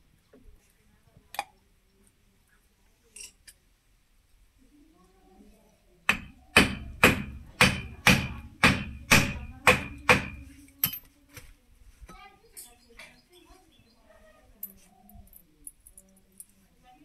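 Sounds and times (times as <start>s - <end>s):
hammer striking metal: 6.1s - 11.0s.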